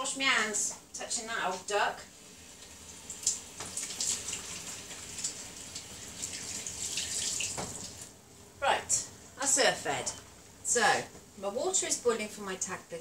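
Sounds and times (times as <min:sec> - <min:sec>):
hands washing under water: 0:02.6 - 0:08.1
tap water splashing in sink: 0:02.6 - 0:08.1.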